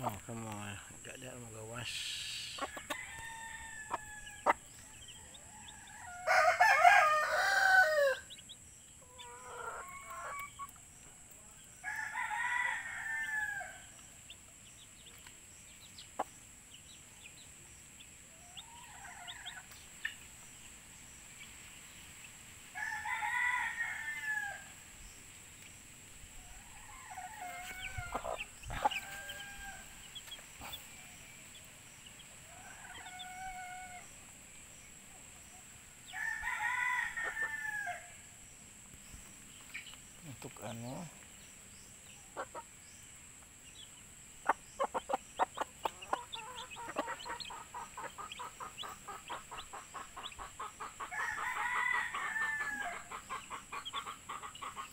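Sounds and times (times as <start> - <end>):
chicks peeping: 0.0 - 11.8, 14.2 - 22.8, 24.9 - 36.2, 38.8 - 51.5, 52.1 - 54.9
rooster crowing: 2.6 - 8.4, 11.8 - 14.0, 22.7 - 24.8, 26.4 - 30.2, 32.4 - 34.2, 36.0 - 38.3, 51.0 - 53.1.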